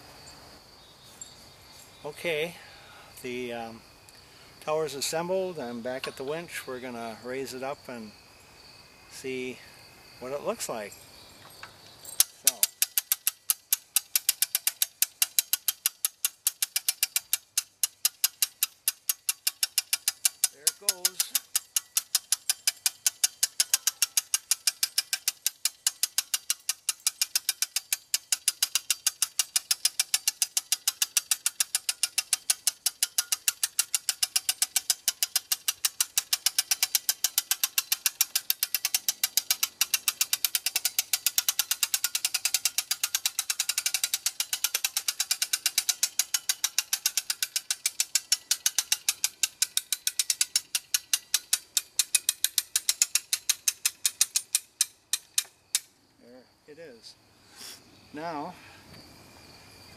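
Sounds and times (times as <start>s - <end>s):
hand-crank winch clicking: 12.1s - 55.9s.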